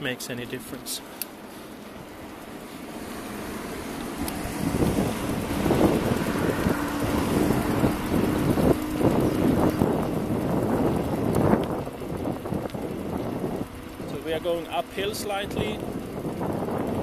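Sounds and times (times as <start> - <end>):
faint electric motor hum: 0.0 - 17.0
bicycle tyre noise: 0.8 - 17.0
wind buffeting microphone: 1.8 - 17.0.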